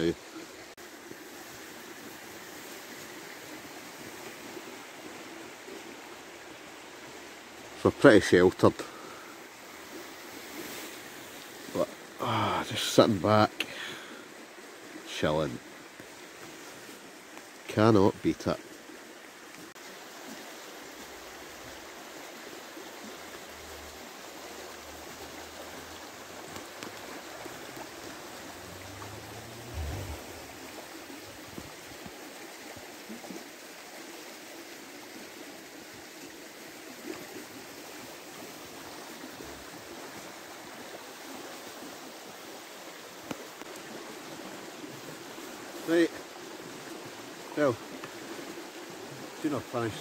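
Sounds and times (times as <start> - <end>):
rain falling on water: 0.0 - 50.0
river running over stones: 0.0 - 50.0
low rumble: 27.8 - 31.6.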